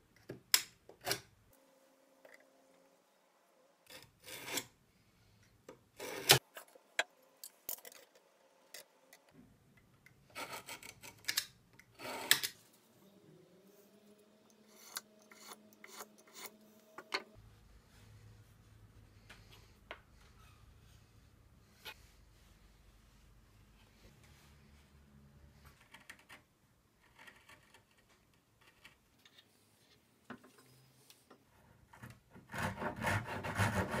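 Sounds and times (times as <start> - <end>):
knife scribing wood: 14.6 - 16.6, 32.5 - 34.0.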